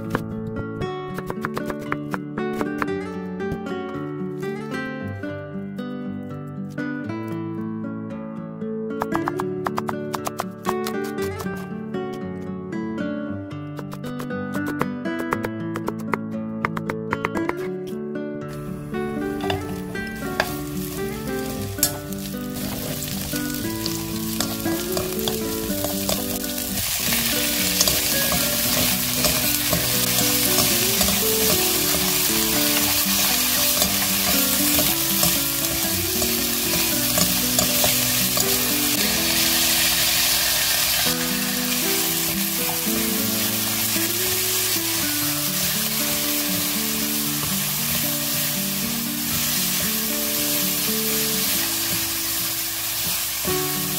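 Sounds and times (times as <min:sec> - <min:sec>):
food sizzling in frying pan: 0:18.6 - 0:53.9.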